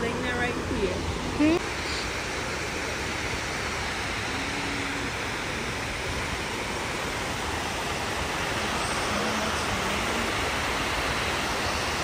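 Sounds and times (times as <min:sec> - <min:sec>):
water cascading into basin: 0:01.5 - 0:12.0.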